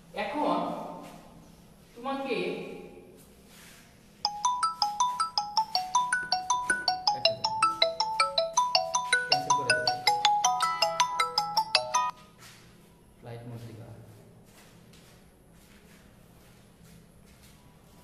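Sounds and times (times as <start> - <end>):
phone ringtone tune: 4.2 - 12.2.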